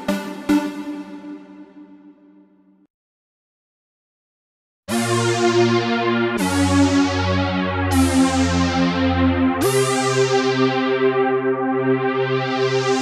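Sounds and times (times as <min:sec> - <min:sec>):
synthesizer chords: 0:00.0 - 0:02.2, 0:04.9 - 0:13.0.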